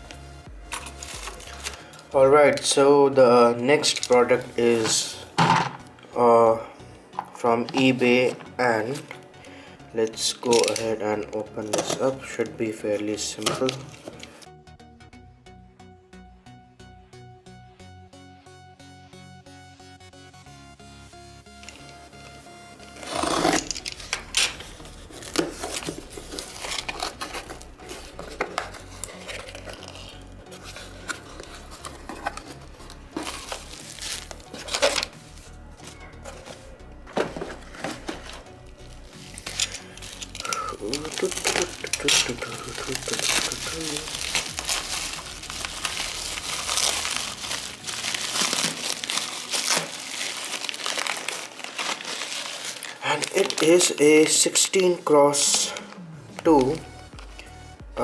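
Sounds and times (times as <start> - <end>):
bubble wrap crinkling: 0.7 - 1.8, 21.6 - 58.0
packing tape being slit: 22.9 - 36.6, 37.3 - 53.9
cardboard scraping and rustling: 23.0 - 38.5.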